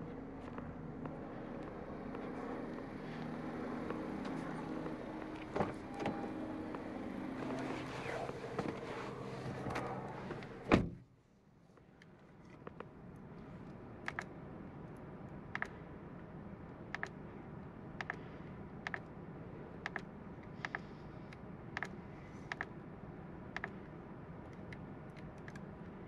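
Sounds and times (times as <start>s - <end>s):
outdoor hum: 0.0s - 26.0s
car door slamming: 10.7s - 11.0s.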